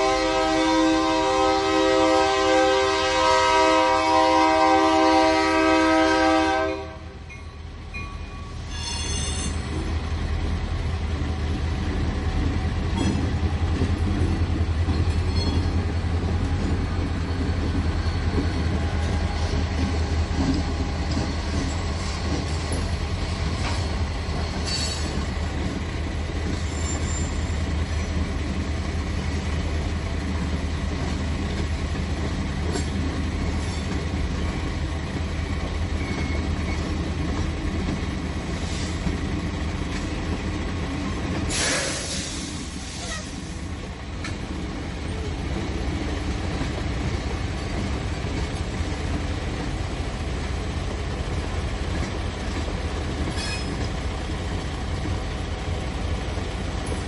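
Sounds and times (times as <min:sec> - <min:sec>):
train horn: 0:00.0 - 0:07.2
train cars rumbling by: 0:00.0 - 0:57.0
wheel squeal: 0:08.7 - 0:09.7, 0:17.1 - 0:19.7, 0:26.6 - 0:28.2, 0:35.9 - 0:37.0, 0:53.3 - 0:53.9.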